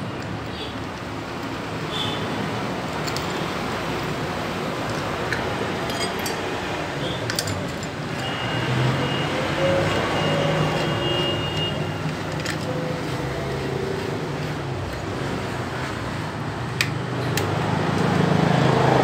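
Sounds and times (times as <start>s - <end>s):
vehicle noise: 0.0s - 19.0s
socket wrench clicks: 16.7s - 18.1s.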